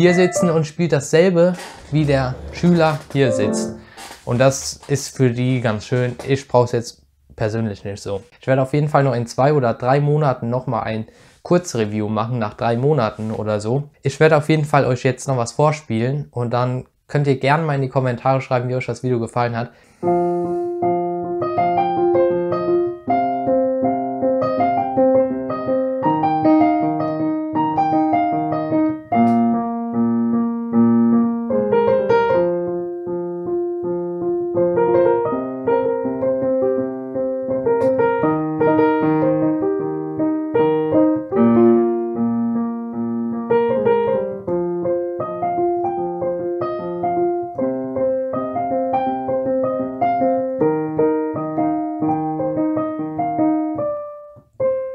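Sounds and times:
digital piano piece: 0.0s - 6.0s, 20.0s - 54.9s.

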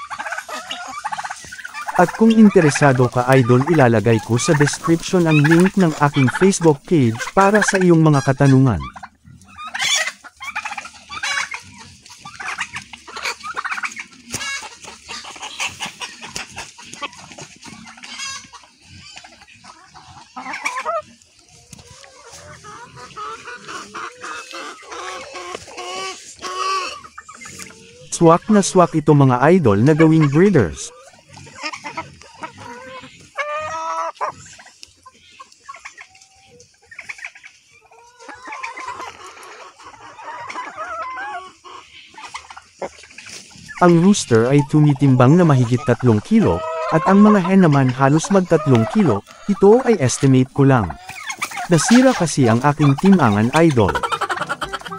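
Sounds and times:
hens clucking: 0.0s - 54.9s
hens pecking at ground: 0.0s - 54.9s.

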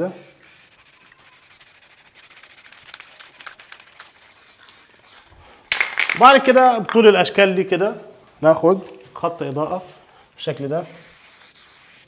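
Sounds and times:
spray paint can hissing: 0.1s - 6.1s, 10.9s - 12.0s.

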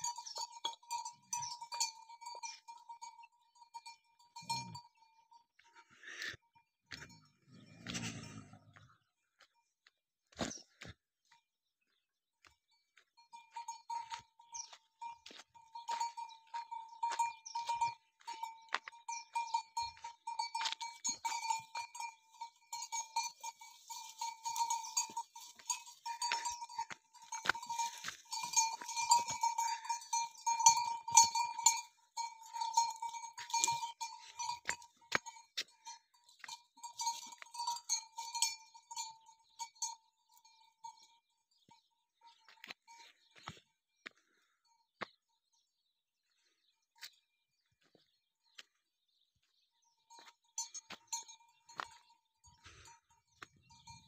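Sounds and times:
neck bell clanking: 0.0s - 5.6s, 13.2s - 43.0s, 50.0s - 54.0s.

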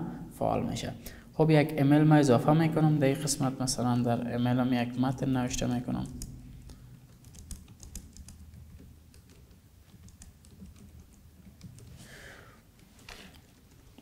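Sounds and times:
laptop keyboard typing clicks: 6.0s - 12.0s.

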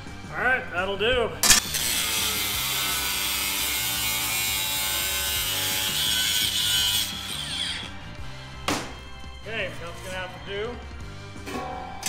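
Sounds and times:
angle grinder cutting steel: 1.4s - 8.0s.

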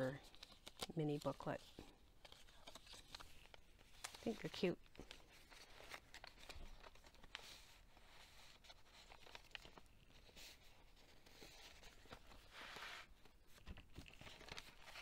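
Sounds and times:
journal pages rustling: 0.0s - 15.0s.

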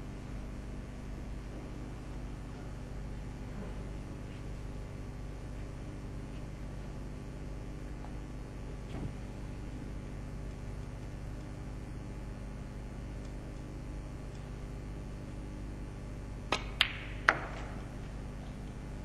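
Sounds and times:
quiet arena hush: 0.0s - 15.8s
snooker balls clicking: 16.5s - 18.9s.

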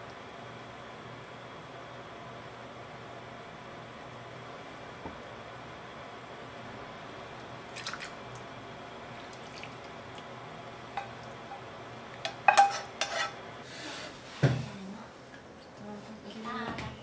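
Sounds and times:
tableware clicking and clinking: 12.3s - 13.3s.

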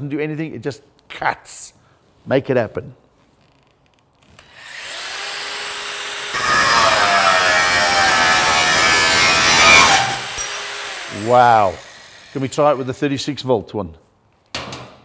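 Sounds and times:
angle grinder whining: 4.4s - 13.0s
disc grinding through metal: 6.3s - 12.5s.

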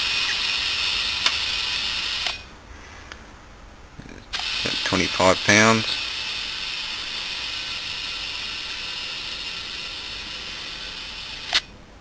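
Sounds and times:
compressed air hissing: 4.4s - 11.6s.

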